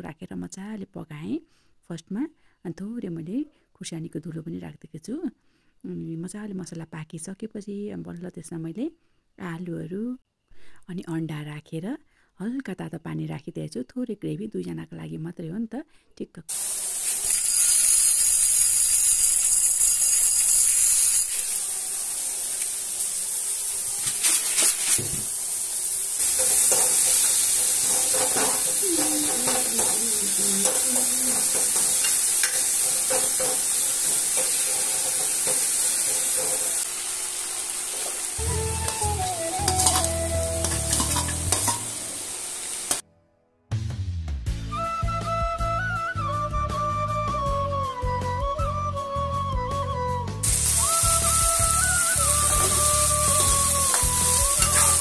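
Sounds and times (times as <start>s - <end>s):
curry sizzling in a pan: 16.5s - 43.0s, 50.4s - 55.0s
metal ladle scraping a pan: 26.2s - 30.0s, 30.6s - 36.9s, 39.6s - 42.0s, 51.9s - 55.0s.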